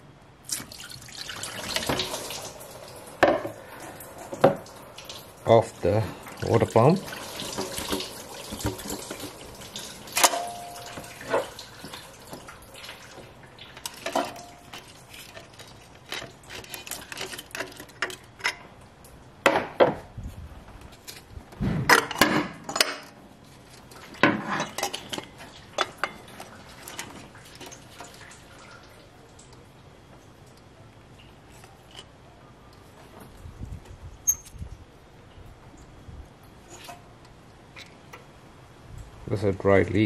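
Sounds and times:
metallic rings: 0:10.2 - 0:11.4, 0:34.2 - 0:34.6
metal clinks and scrapes: 0:13.8 - 0:18.6.

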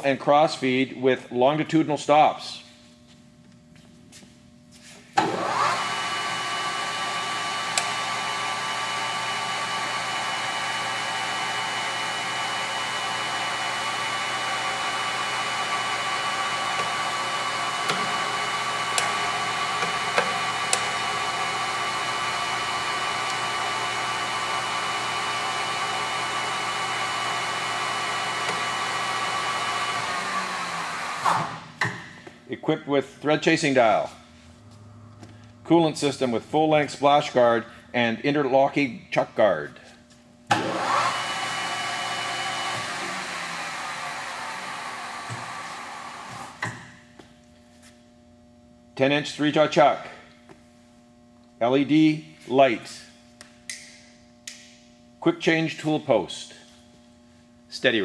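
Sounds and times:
lathe motor whining: 0:05.2 - 0:31.8, 0:40.5 - 0:46.8.

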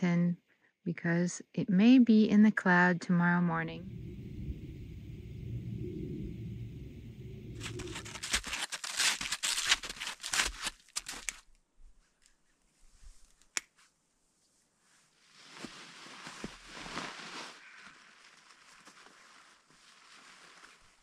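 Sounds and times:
low steady rumble: 0:03.4 - 0:08.5
snowshoes crunching on snow: 0:15.4 - 0:21.0.

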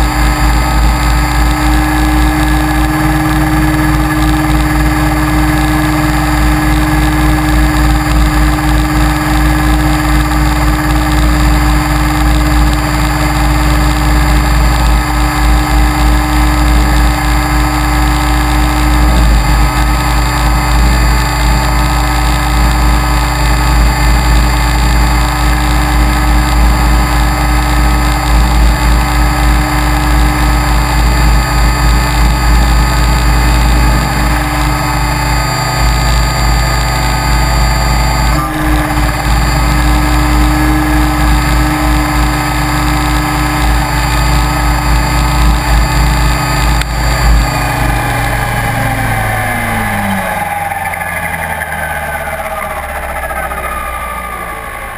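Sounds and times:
electric motor whine: 0:00.0 - 0:54.9
rotor beating: 0:00.0 - 0:54.9.

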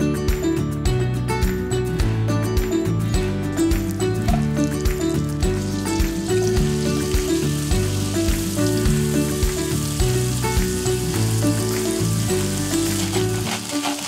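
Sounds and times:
background music with a beat: 0:00.0 - 0:14.0
onion sizzling in a pan: 0:03.9 - 0:14.0.

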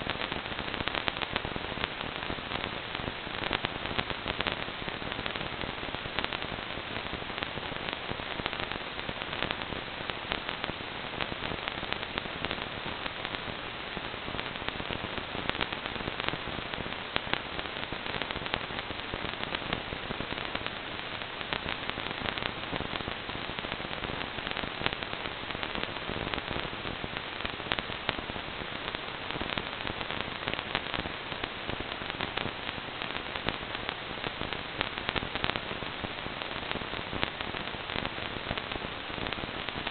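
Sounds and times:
radio static hiss with crackling: 0:00.0 - 0:39.9.

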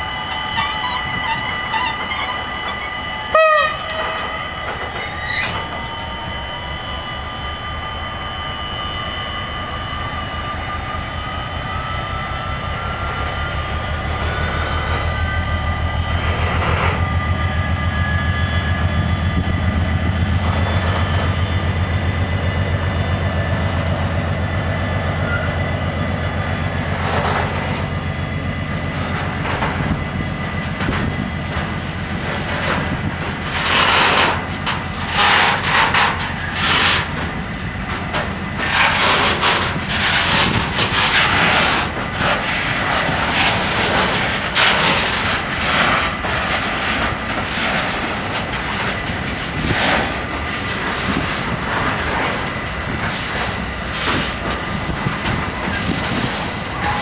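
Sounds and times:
crossing warning bells ringing: 0:00.0 - 0:57.0
locomotive engine with whine: 0:00.0 - 0:57.0
locomotive horn blast: 0:00.5 - 0:04.9
train wheels clattering: 0:12.7 - 0:24.2, 0:25.2 - 0:57.0.

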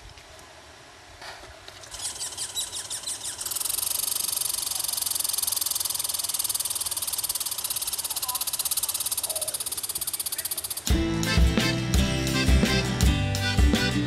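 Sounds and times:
squirrel chirps: 0:01.9 - 0:10.9
squirrel rattling trill: 0:01.9 - 0:10.9.

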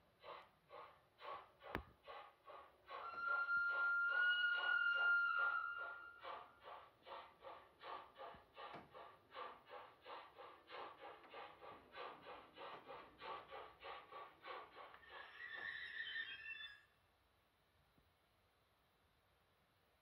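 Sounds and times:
steam exhaust chuffs: 0:00.0 - 0:15.3
whistle-like tone: 0:03.0 - 0:06.4, 0:15.1 - 0:16.9.

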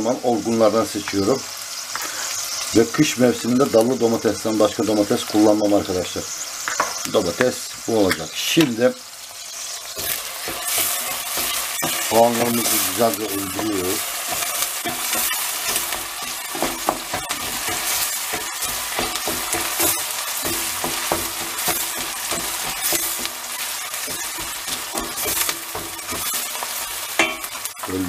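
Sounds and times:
vegetables sizzling in oil: 0:00.0 - 0:28.0
wooden spoon scraping and knocking pan: 0:09.8 - 0:28.0.

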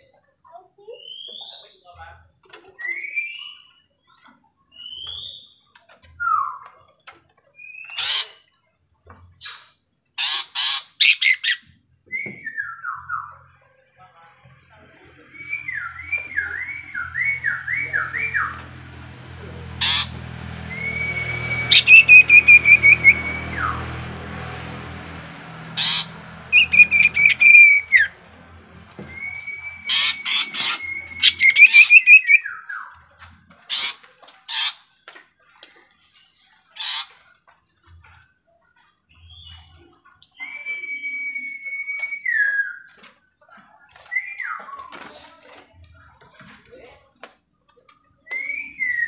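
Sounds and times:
songbird whistling and trilling: 0:00.9 - 0:01.7, 0:02.8 - 0:05.6, 0:06.2 - 0:06.7, 0:11.0 - 0:13.4, 0:15.2 - 0:18.6, 0:20.6 - 0:23.8, 0:25.8 - 0:28.2, 0:28.9 - 0:33.1, 0:39.1 - 0:43.0, 0:44.0 - 0:45.0, 0:48.1 - 0:49.0
low hum: 0:14.6 - 0:32.0.

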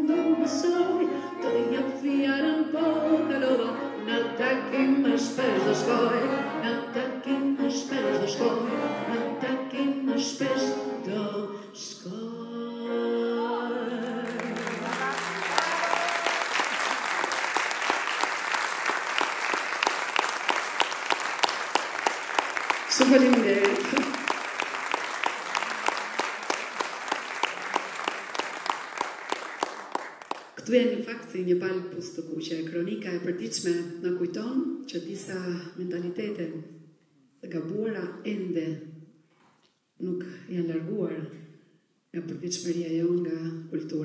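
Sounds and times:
piano and string quartet: 0:00.0 - 0:11.4
woman singing: 0:00.0 - 0:15.6, 0:22.9 - 0:24.2
audience applause: 0:14.2 - 0:30.6.

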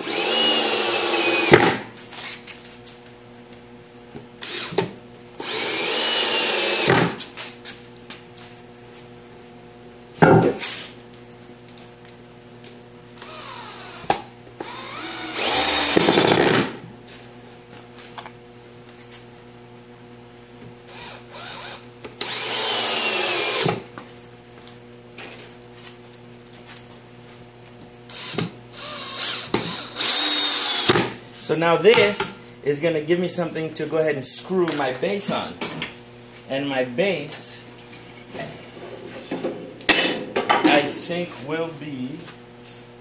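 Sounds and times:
cordless drill whining: 0:00.0 - 0:01.6, 0:04.4 - 0:07.0, 0:13.2 - 0:16.6, 0:20.9 - 0:23.8, 0:28.1 - 0:31.0.

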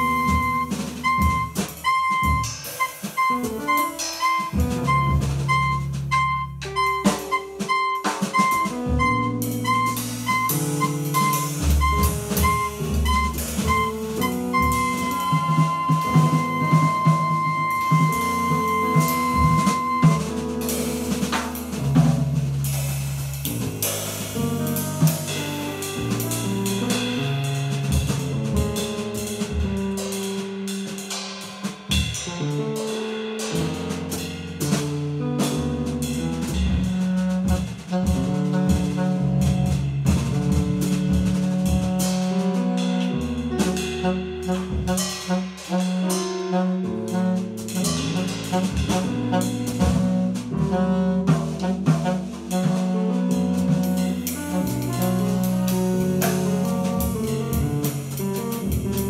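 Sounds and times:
saxophone melody: 0:00.0 - 0:20.6, 0:46.5 - 0:59.0
jazz band playing: 0:00.0 - 0:59.0.

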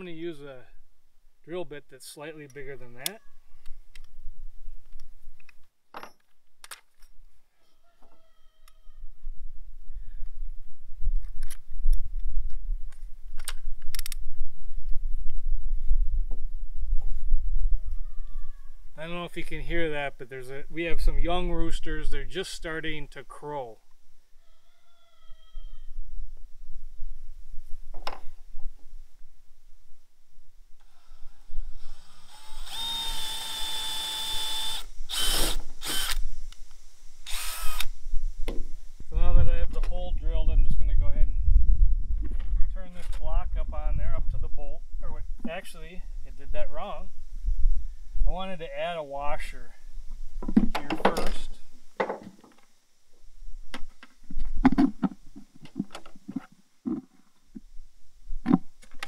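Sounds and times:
cordless drill boring wood: 0:30.8 - 0:36.2, 0:37.2 - 0:38.0
plastic bucket knocks and clunks: 0:52.0 - 0:52.4.

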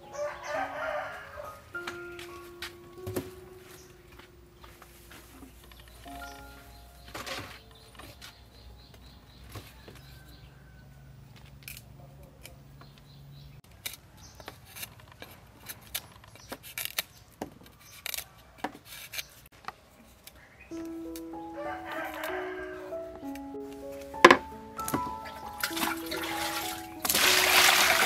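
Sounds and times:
plastic basin set on wooden table: 0:24.2 - 0:28.0.

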